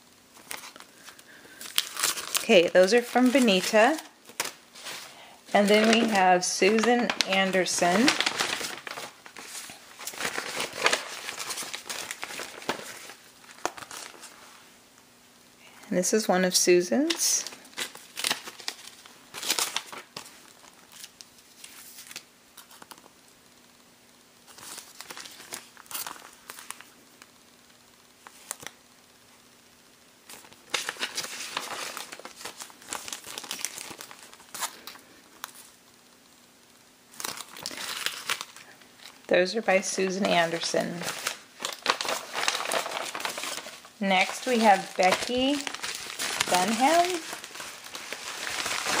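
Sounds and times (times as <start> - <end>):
plastic bag crinkling: 0.3 - 14.4, 17.0 - 23.1, 24.5 - 27.0, 30.2 - 35.8, 37.1 - 39.3, 39.9 - 49.0.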